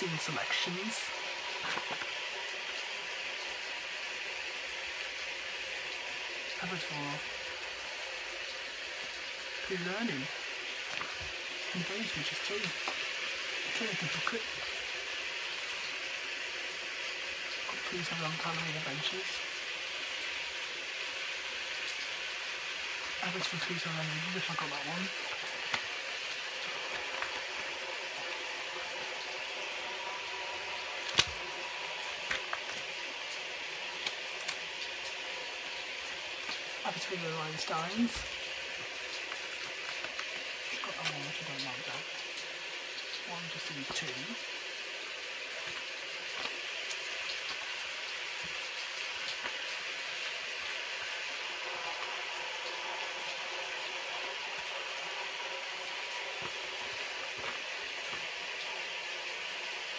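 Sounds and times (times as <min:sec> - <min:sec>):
heavy rain hissing: 0:00.0 - 0:59.9
booklet being handled clicks: 0:31.1 - 0:31.4, 0:32.2 - 0:32.8.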